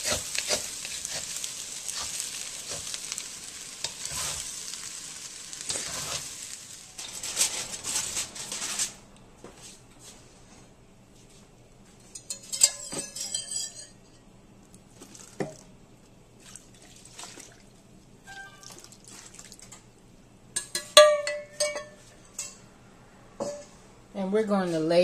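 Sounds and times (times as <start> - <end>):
metal cookware clinking: 12.0 - 14.2, 20.6 - 22.6, 23.4 - 23.8.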